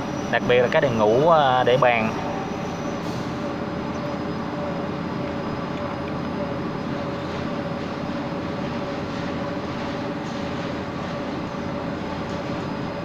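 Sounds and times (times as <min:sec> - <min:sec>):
machine rumble with hum: 0:00.0 - 0:13.0.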